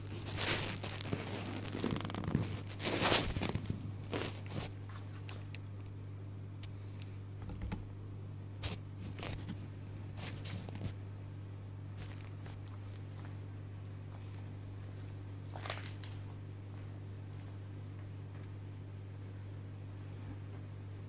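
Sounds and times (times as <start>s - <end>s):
canvas rustling: 0.0s - 5.3s.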